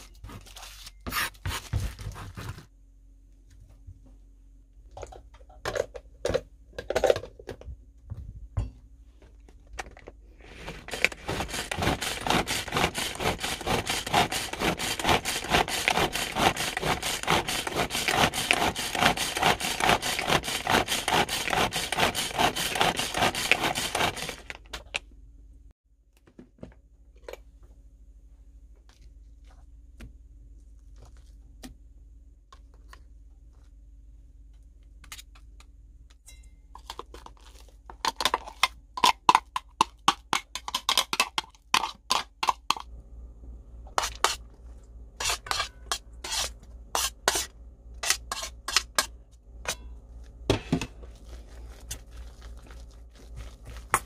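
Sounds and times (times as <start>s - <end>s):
pull-string food chopper whirring: 10.8s - 24.6s.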